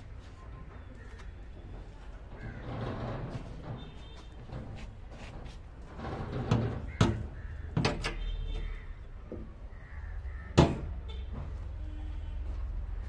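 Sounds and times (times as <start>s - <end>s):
sheet metal door clicks and clanks: 2.3s - 8.7s, 10.5s - 11.6s.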